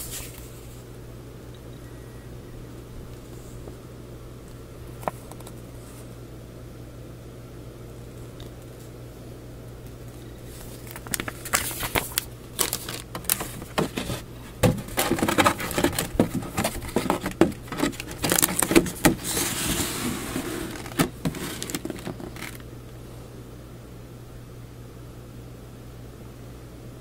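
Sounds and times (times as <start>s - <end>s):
bags rustling and crinkling: 10.4s - 22.6s
cardboard lid sliding: 12.9s - 22.6s.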